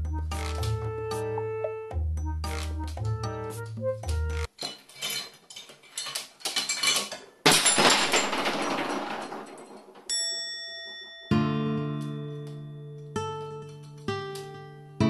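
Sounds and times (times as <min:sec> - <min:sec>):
background music: 0:00.0 - 0:04.5
loud clatter: 0:06.7 - 0:10.1.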